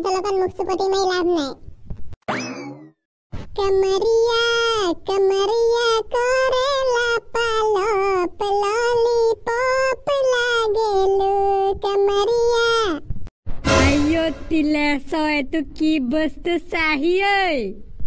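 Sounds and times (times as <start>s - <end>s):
high-pitched voice singing: 3.6s - 13.0s.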